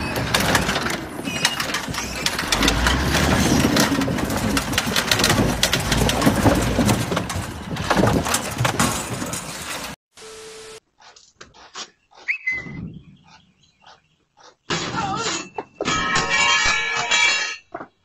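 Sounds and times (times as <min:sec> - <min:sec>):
wood and metal clattering: 0:00.0 - 0:10.0, 0:14.6 - 0:18.0.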